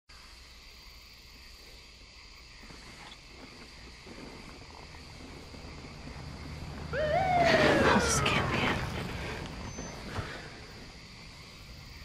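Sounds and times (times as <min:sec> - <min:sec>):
night insects chirring: 0:00.1 - 0:12.0
low hum: 0:03.4 - 0:12.0.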